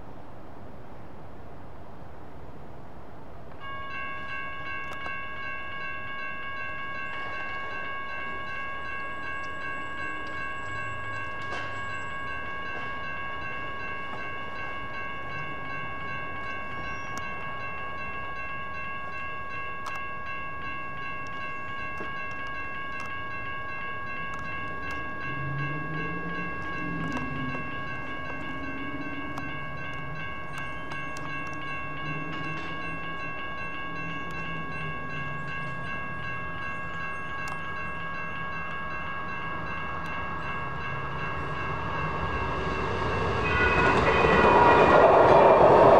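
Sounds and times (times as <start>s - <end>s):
railroad crossing bells ringing: 3.5s - 45.9s
low sound: 39.8s - 45.9s.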